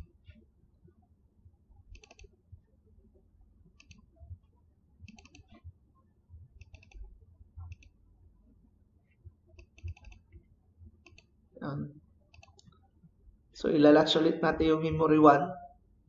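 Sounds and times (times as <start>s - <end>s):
computer mouse clicks: 1.9s - 2.4s, 3.7s - 4.2s, 5.0s - 5.7s, 6.6s - 8.0s, 9.5s - 10.4s, 11.0s - 11.4s, 12.3s - 12.8s.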